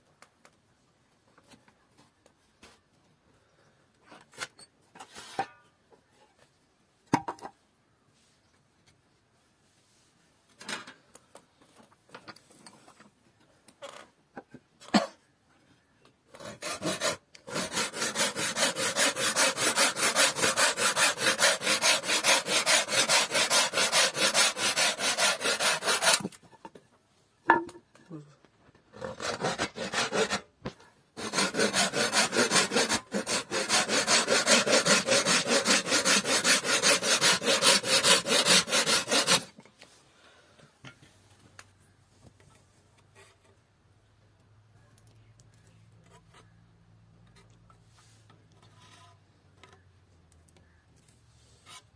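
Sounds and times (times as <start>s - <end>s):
hand saw cutting wood: 16.3s - 26.4s, 28.9s - 30.5s, 31.2s - 39.6s.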